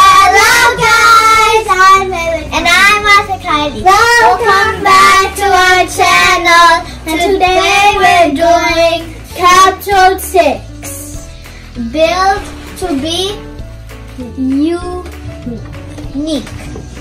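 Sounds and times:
children singing: 0.0s - 10.6s
low musical accompaniment: 0.0s - 17.0s.

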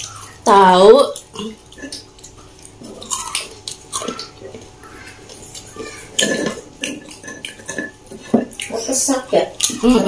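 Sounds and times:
people chewing and eating: 0.0s - 10.0s.

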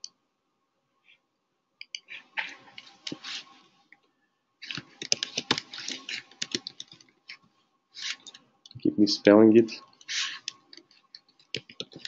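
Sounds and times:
computer keyboard typing: 4.6s - 7.1s, 10.0s - 12.0s.

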